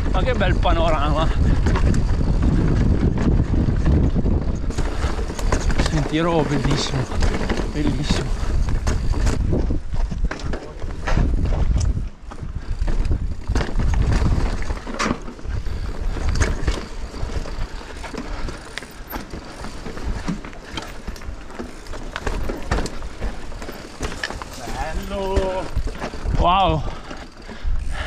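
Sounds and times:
bike clicking and rattling: 0.0s - 28.0s
tyres bumping over stones: 4.7s - 11.8s, 13.4s - 26.4s.

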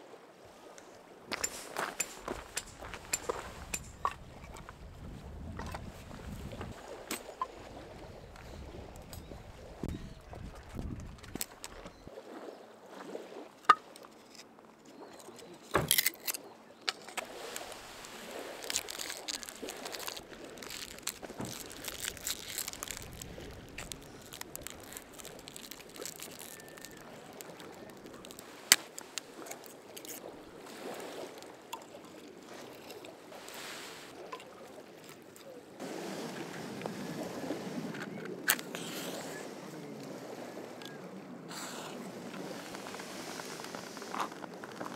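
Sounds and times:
firewood cracking: 15.1s - 30.5s
rustling: 17.0s - 31.5s.

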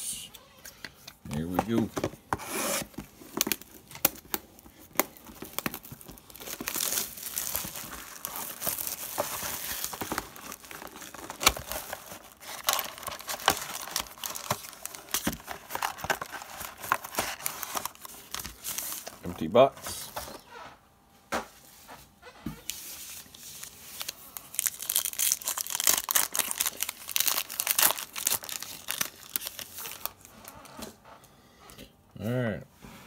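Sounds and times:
foil packs rustling: 2.8s - 20.5s, 22.7s - 30.3s
plastic shrink wrap crinkling: 2.9s - 20.0s, 22.6s - 30.8s.

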